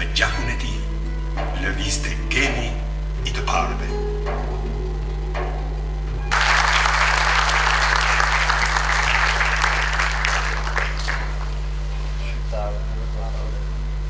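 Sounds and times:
low electrical hum: 0.0 - 14.0
audience applauding: 6.3 - 12.1.

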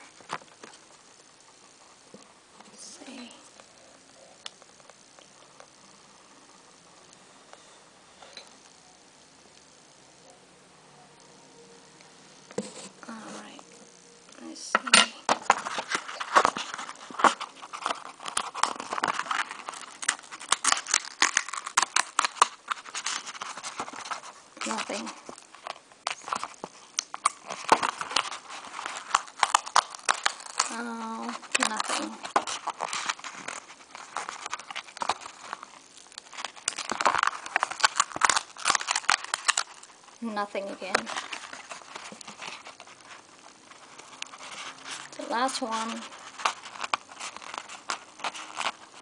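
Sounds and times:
cardstock tabs tearing and clicking: 15.3 - 25.1, 26.1 - 35.6, 36.2 - 39.8.

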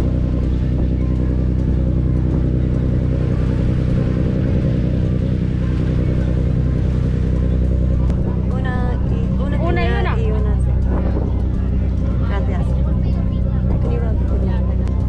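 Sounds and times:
boat engines droning: 0.0 - 15.0.

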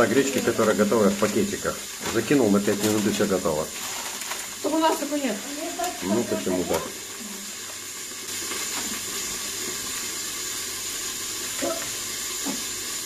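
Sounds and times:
grains poured into metal pot: 0.0 - 10.3
chicken frying sizzle: 0.0 - 13.0.

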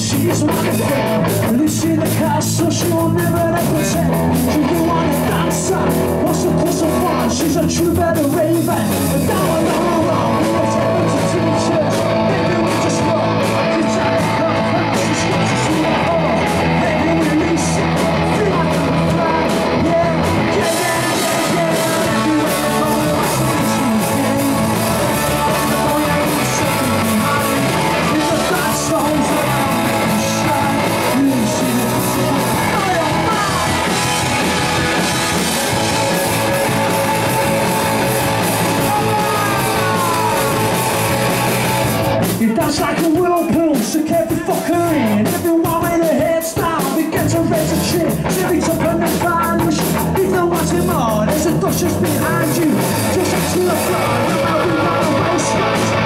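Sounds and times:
rock band playing: 0.0 - 56.0
sliding guitar notes: 8.7 - 42.3.

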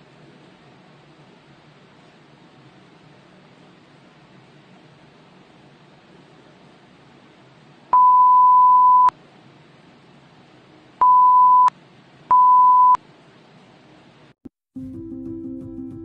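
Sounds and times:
censor beep tone: 8.0 - 9.1, 11.0 - 11.7, 12.3 - 13.0.

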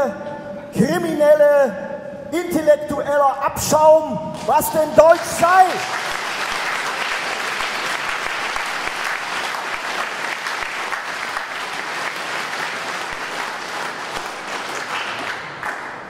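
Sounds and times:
audience applauding: 4.4 - 16.0.

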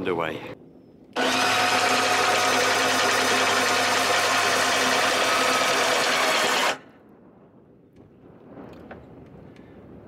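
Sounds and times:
anchor windlass humming: 1.2 - 6.8.

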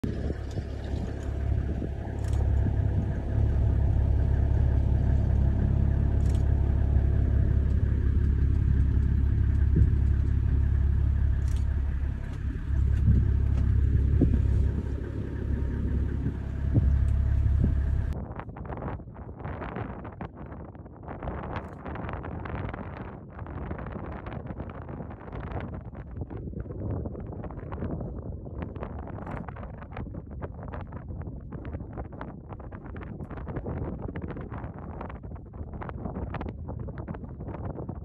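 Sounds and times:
vehicle engine rumbling: 0.0 - 18.2.

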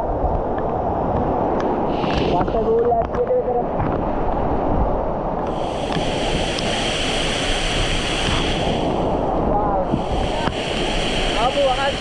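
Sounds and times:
high even buzz: 5.5 - 12.0
water rushing over rocks: 9.8 - 12.0.

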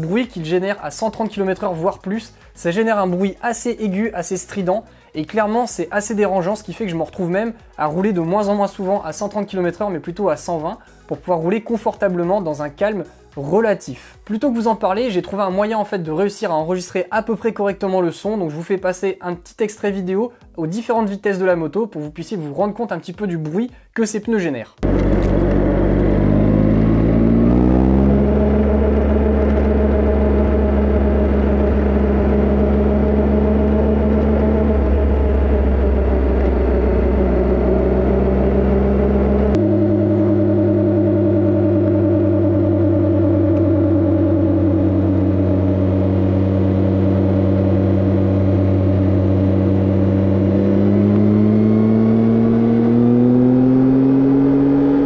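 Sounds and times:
motorcycle engine and tyre drone: 24.8 - 55.0.

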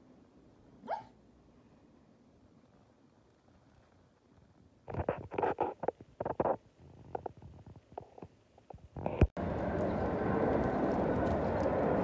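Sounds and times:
street background noise: 7.7 - 12.0.

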